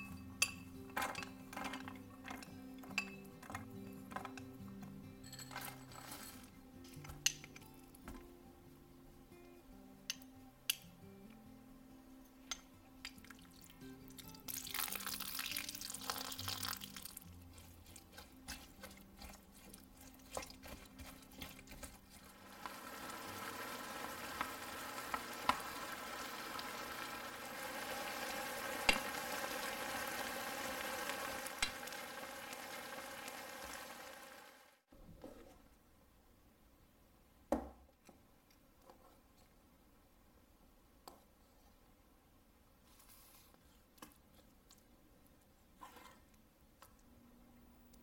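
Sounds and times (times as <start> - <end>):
food sizzling in a hot pan: 14.5 - 17.3, 22.2 - 34.8.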